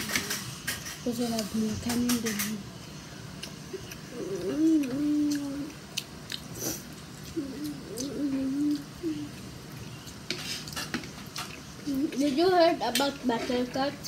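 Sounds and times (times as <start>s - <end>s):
child chewing food: 0.0s - 14.0s
child humming: 4.1s - 5.8s, 6.6s - 9.4s.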